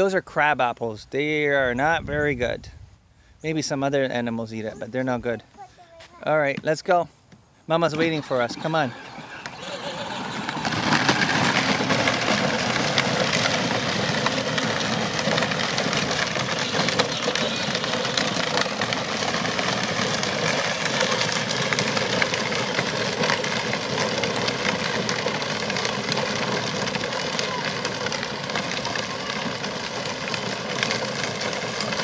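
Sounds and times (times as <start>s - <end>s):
plastic wheels crackling on gravel: 7.7s - 32.0s
toy ride-on motor drone: 8.0s - 32.0s.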